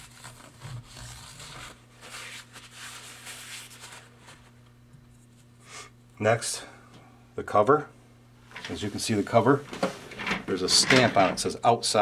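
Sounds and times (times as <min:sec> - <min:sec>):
paper towel wiping and rustling: 0:01.4 - 0:04.6.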